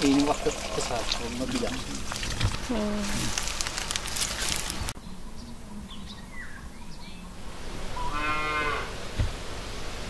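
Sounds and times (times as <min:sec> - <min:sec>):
tea pouring into a glass: 0:00.0 - 0:02.6
cow mooing: 0:08.0 - 0:08.9.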